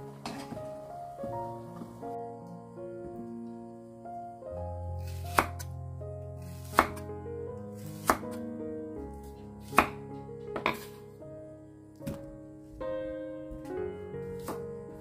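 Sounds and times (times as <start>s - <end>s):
background music: 0.0s - 15.0s
cleaver chopping on wooden board: 5.0s - 5.7s, 6.6s - 7.0s, 8.0s - 8.4s, 9.7s - 10.0s.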